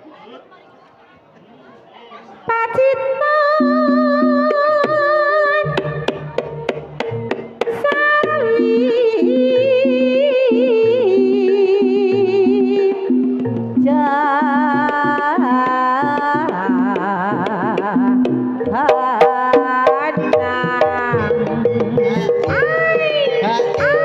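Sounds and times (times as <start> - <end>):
woman singing with vibrato: 2.5 - 6.1, 7.6 - 24.0
hand drum striking: 5.6 - 9.3, 13.1 - 24.0.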